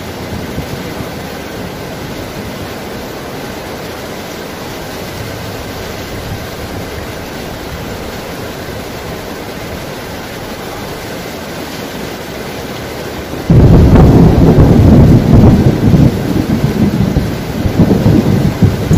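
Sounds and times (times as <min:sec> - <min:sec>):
thunder clap and rumble: 0:00.0 - 0:03.2, 0:04.9 - 0:08.2, 0:13.2 - 0:18.9
rushing water: 0:00.0 - 0:18.9.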